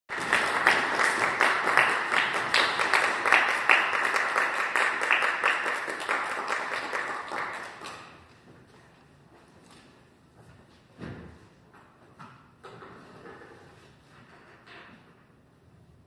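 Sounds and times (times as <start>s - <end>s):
audience applauding: 0.1s - 8.0s.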